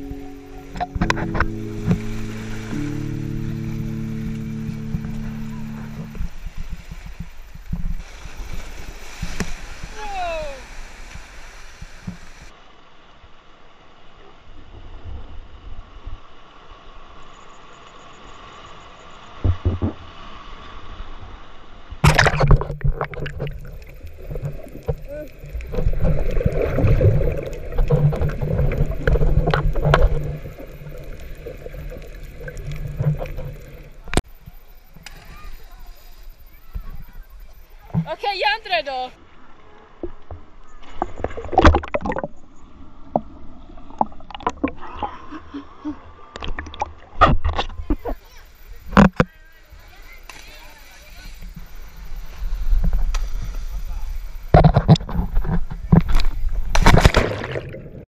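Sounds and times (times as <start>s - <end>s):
muffled underwater noise: 0.0s - 7.4s, 22.1s - 42.2s
low thumps: 0.0s - 8.0s
sea waves washing over rocks: 0.0s - 12.6s, 22.0s - 34.3s
water sloshing and bubbling: 0.0s - 12.6s, 22.0s - 58.0s
loud water splash: 22.0s - 33.6s, 56.7s - 58.0s.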